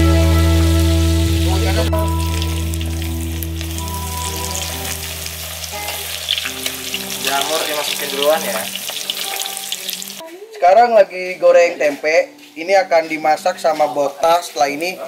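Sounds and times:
food sizzling in hot oil: 0:00.0 - 0:10.2.

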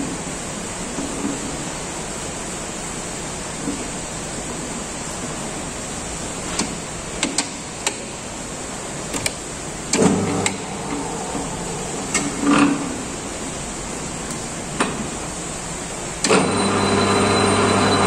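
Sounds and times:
heavy rain: 0:00.0 - 0:16.8
lathe control clicks and clunks: 0:09.1 - 0:11.0, 0:16.2 - 0:16.8
lathe motor humming: 0:16.3 - 0:18.0.

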